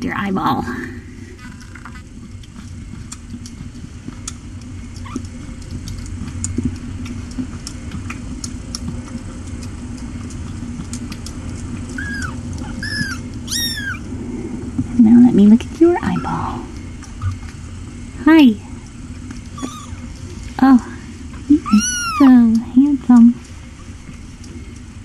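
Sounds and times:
low hum: 0.0s - 25.0s
kittens mewing: 5.0s - 5.3s, 11.9s - 14.1s, 16.0s - 17.4s, 19.5s - 20.1s, 21.5s - 22.4s.

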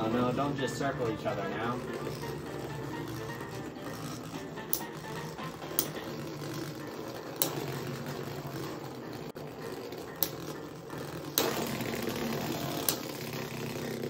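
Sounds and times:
spinning tops clashing: 0.0s - 14.0s
spinning tops clicking together: 0.0s - 14.0s
spinning tops whirring: 0.0s - 14.0s.

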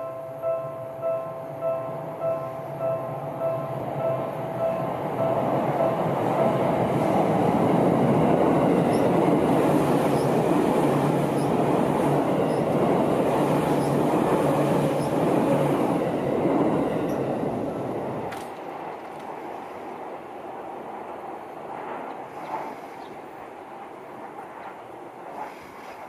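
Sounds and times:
electric train passing: 0.0s - 26.0s.

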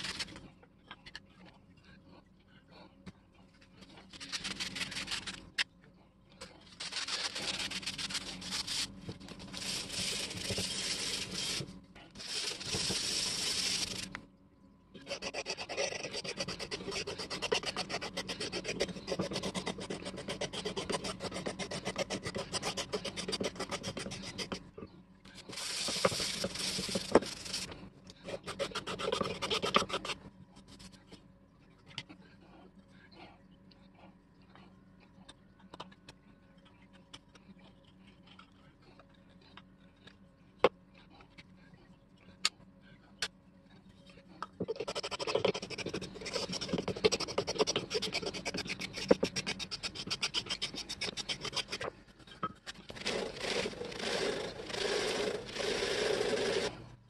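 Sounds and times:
wood rasp filing: 15.0s - 24.6s, 28.3s - 30.2s, 44.7s - 51.9s, 52.9s - 56.7s.

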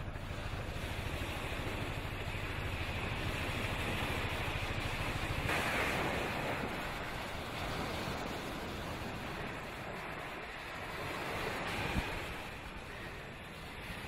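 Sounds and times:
boat engine throbbing: 0.0s - 14.0s
wind and water noise: 0.0s - 14.0s.

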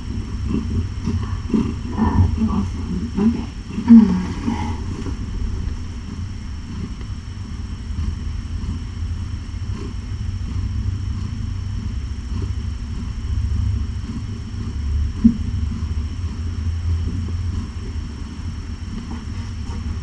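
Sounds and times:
cat purring: 0.0s - 20.0s.

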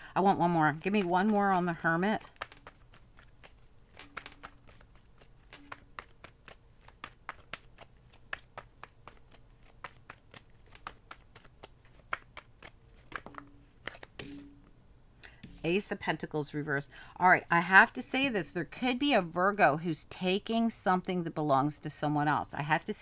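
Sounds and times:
cards being shuffled: 0.7s - 14.5s.

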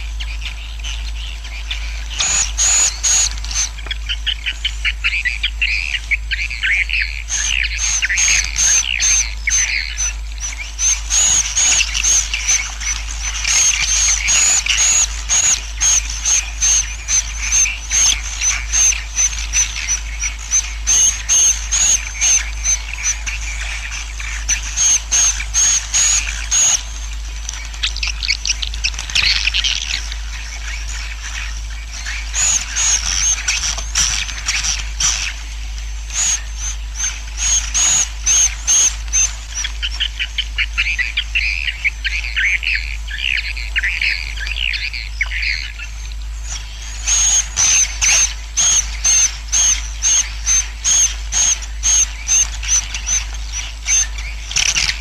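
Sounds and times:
steady low hum: 0.0s - 55.0s
swiftlets twittering: 7.3s - 40.0s.

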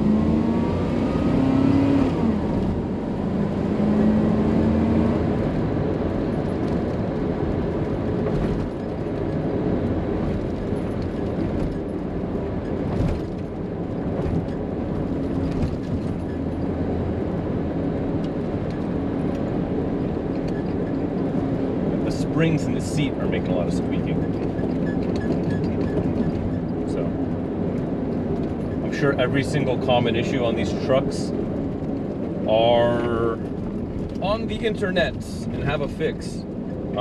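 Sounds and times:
engine and road noise in cab: 0.0s - 37.0s
seat springs squeaking: 24.1s - 26.9s.

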